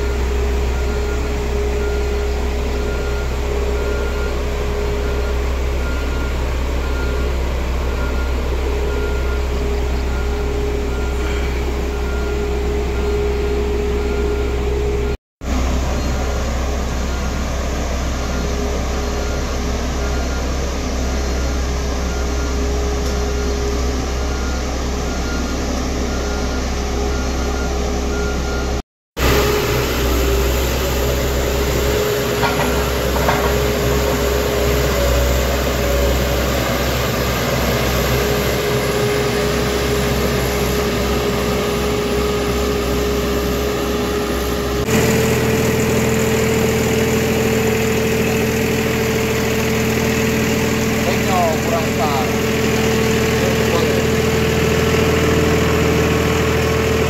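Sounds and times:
diesel engines of road machines: 0.0s - 57.0s.

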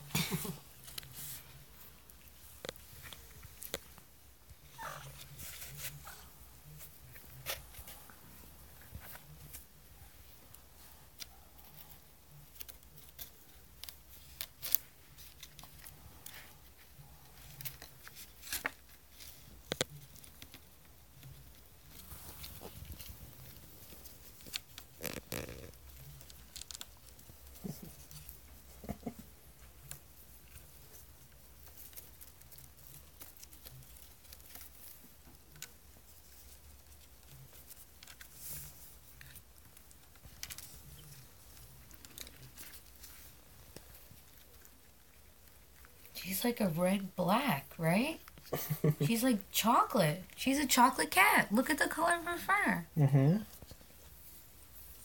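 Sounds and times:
claws scratching cardboard: 4.6s - 48.5s.

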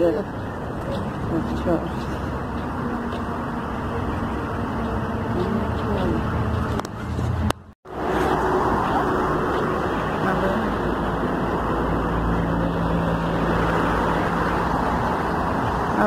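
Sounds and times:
low engine hum: 0.0s - 16.0s
traffic and road noise: 0.0s - 16.0s.

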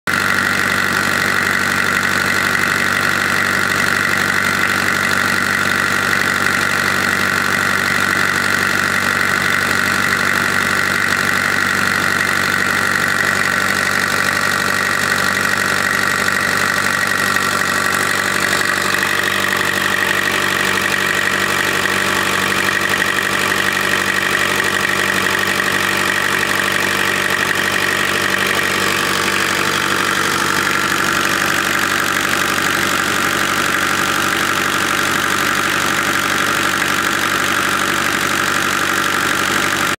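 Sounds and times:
diesel engine running: 0.1s - 39.9s
radiator fan spinning: 0.5s - 39.0s.

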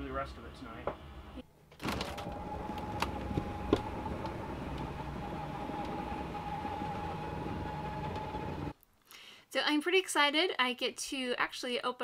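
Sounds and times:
electric motor whining: 1.9s - 8.7s.

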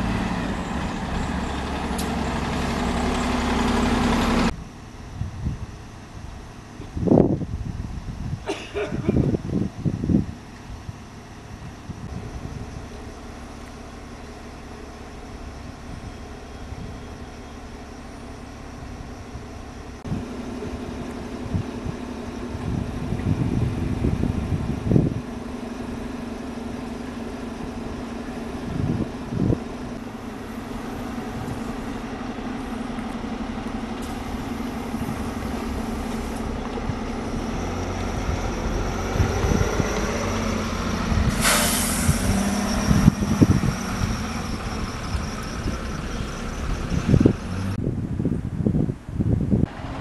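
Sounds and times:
large vehicle engine running: 0.0s - 50.0s
air brake hiss: 41.3s - 42.7s.

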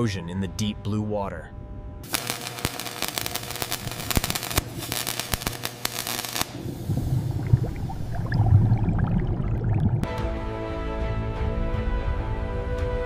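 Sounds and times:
welding arc crackling: 2.0s - 7.1s
underwater bubbling and gurgling: 6.6s - 10.1s.

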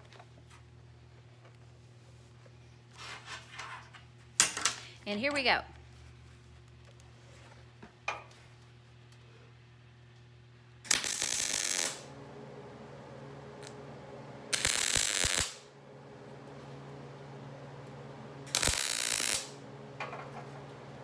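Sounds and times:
low steady hum: 4.2s - 21.0s
welding arc crackling: 10.9s - 21.0s.

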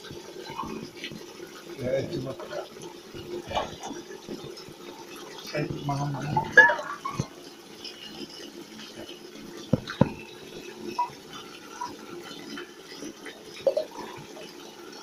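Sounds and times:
water lapping: 0.0s - 14.7s
sharp knocks: 9.7s - 10.2s.

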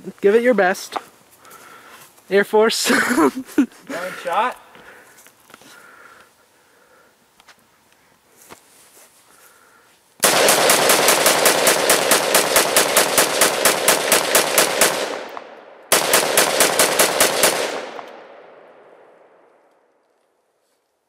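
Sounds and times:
rifle fired rapidly: 10.2s - 18.6s
gunshot echo: 10.2s - 19.5s.

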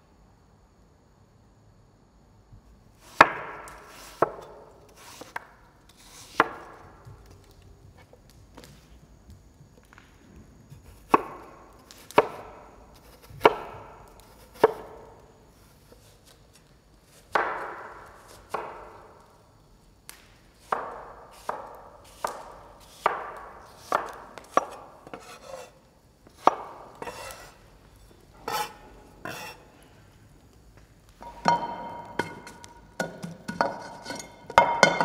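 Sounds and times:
knife chopping on wooden board: 3.2s - 5.4s, 12.0s - 15.0s, 17.2s - 18.9s, 20.6s - 25.8s, 26.4s - 27.5s.

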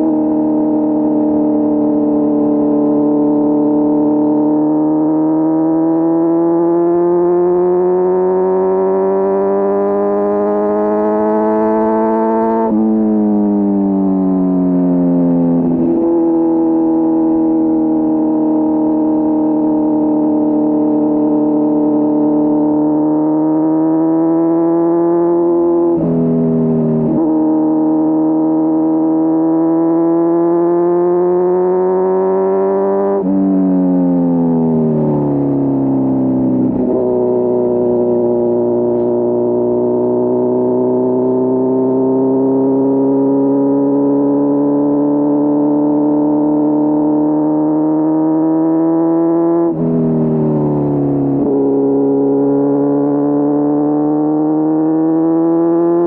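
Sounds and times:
motorcycle engine at high revs: 0.0s - 56.0s.

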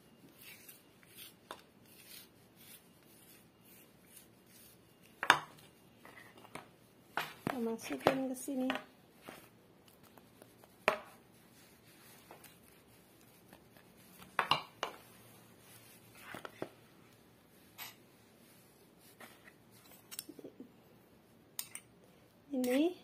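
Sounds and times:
spoon tapping and scraping bowl: 14.3s - 15.0s.

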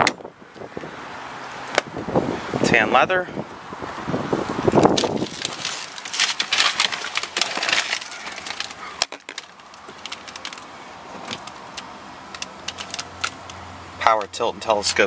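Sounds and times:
crackling handling noise: 4.7s - 13.6s.

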